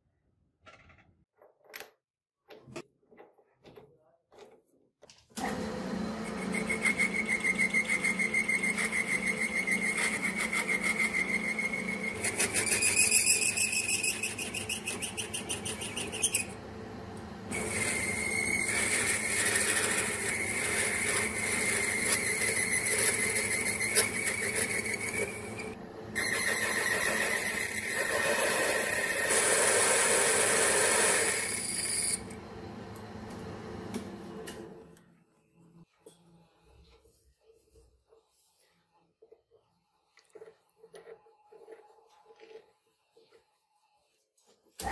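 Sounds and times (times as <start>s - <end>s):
metal lathe machining: 17.5s - 32.4s.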